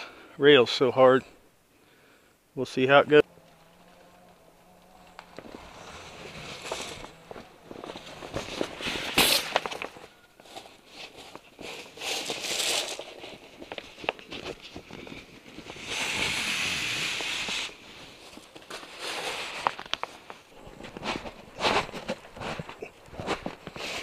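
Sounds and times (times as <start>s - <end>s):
awning fabric rustling and crinkling: 3.4s - 15.8s, 17.5s - 24.0s
scraping hiss: 8.4s - 13.5s, 14.9s - 20.3s.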